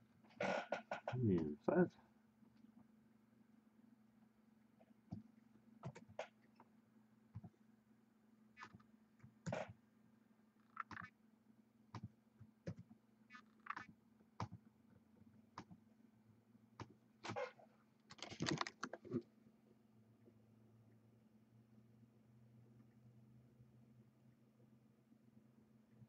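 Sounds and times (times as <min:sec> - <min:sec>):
mouse and keyboard clicks: 0:10.7 - 0:11.1, 0:12.7 - 0:14.6, 0:18.1 - 0:19.2
low steady hum: 0:18.9 - 0:26.0.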